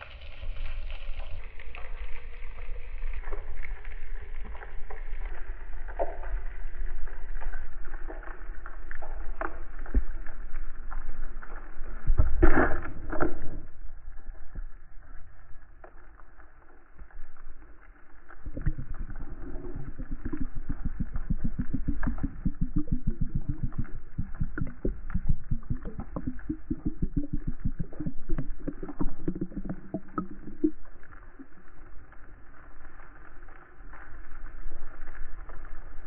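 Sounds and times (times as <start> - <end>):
underwater crackle of clicks: 0.0 - 36.0
gurgling water rush: 18.4 - 31.9
fast low pulsing: 18.5 - 31.6.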